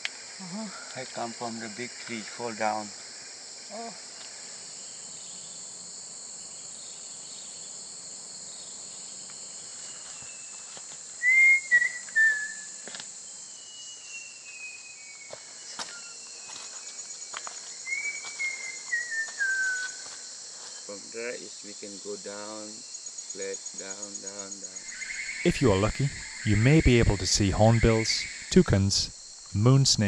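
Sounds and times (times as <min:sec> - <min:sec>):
insects droning: 0:00.0 - 0:30.0
falling whistled calls: 0:09.8 - 0:12.8, 0:13.4 - 0:16.8, 0:17.7 - 0:20.3, 0:24.8 - 0:29.2.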